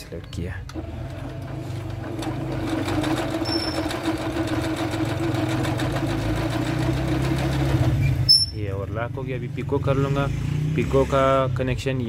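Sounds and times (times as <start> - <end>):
sewing machine running: 0.7 - 8.3.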